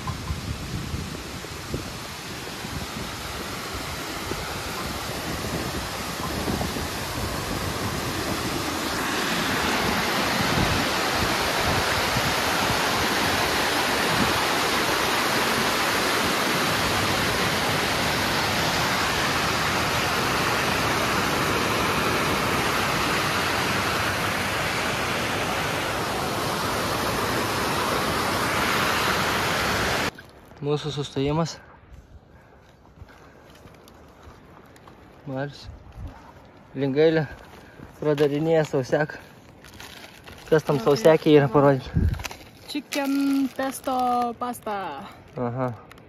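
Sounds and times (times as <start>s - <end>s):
waterfall rushing: 0.0s - 30.1s, 40.5s - 41.8s.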